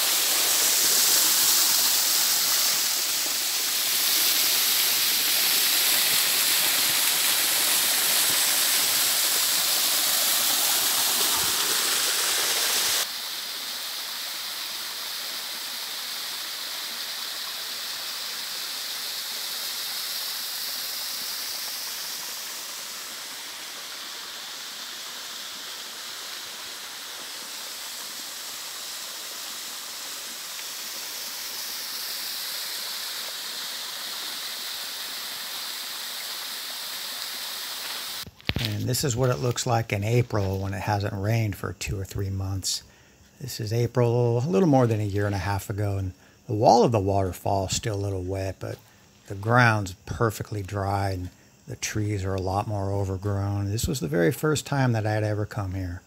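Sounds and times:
waterfall into rock pool: 0.0 - 39.7.

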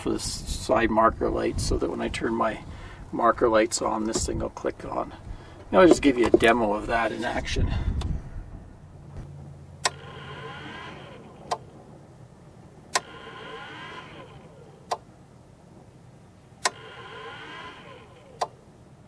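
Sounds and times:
faint whirr: 0.0 - 19.0
relay clicking: 9.8 - 11.7, 12.9 - 15.1, 16.6 - 18.6.

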